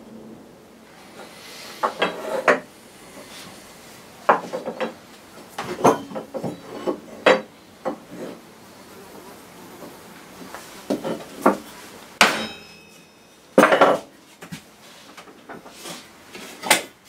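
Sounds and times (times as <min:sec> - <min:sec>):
metallic clinks: 0:12.4 - 0:13.4.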